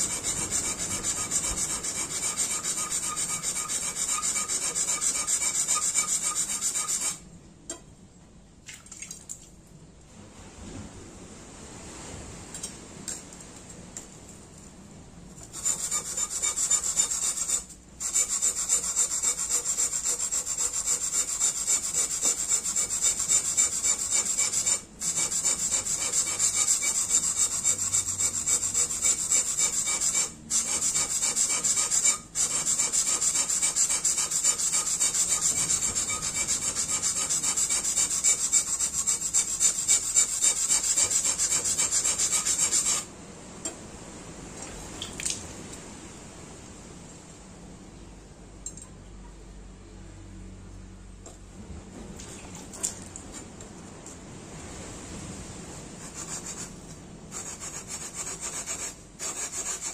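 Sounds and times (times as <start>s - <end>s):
blade scraping on a whetstone: 0.0s - 7.2s, 15.4s - 43.1s, 56.0s - 56.7s, 57.3s - 59.9s.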